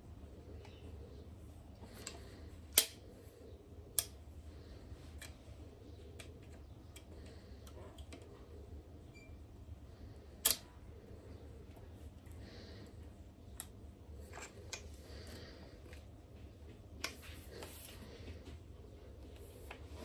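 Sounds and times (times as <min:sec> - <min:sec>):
low steady hum: 0:00.0 - 0:20.0
sharp handling clicks: 0:02.0 - 0:03.0.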